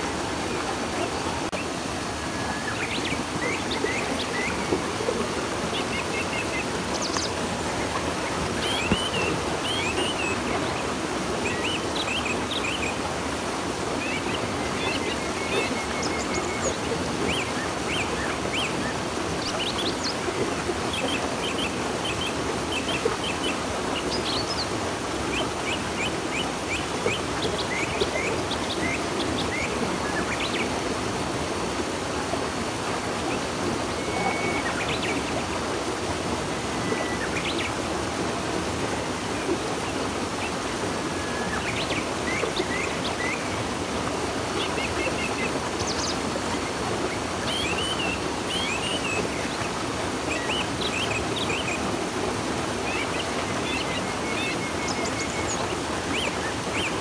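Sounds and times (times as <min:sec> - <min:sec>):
river rushing: 0:00.0 - 0:57.0
small birds chirping: 0:00.5 - 0:13.0.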